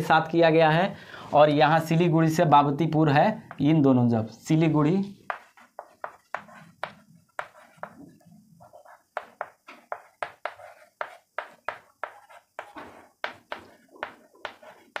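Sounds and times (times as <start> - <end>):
chalk tapping on chalkboard: 3.5 - 3.7, 5.2 - 15.0
chalk scratching: 5.2 - 15.0.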